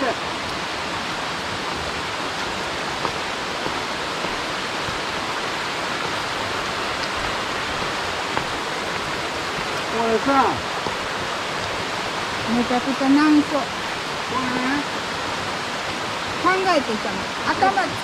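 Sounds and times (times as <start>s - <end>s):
stream rushing over rocks: 0.0s - 18.0s.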